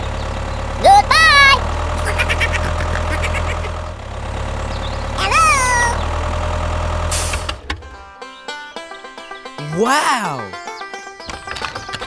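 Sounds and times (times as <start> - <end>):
engine idling: 0.0 - 8.2.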